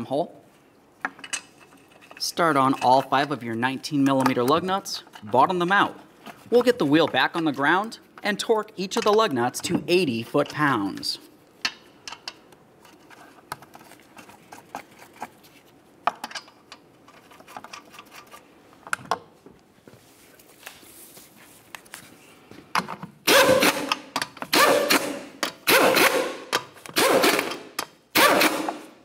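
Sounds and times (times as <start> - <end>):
cordless power tool bursts: 27.0 - 28.9.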